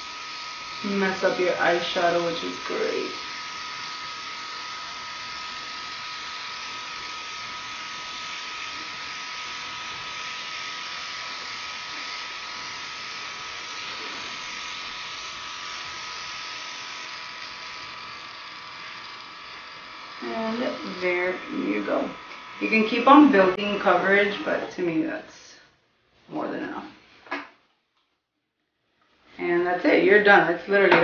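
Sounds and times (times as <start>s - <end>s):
airbrush hiss: 0.0s - 24.5s
small compressor whine: 0.0s - 25.7s.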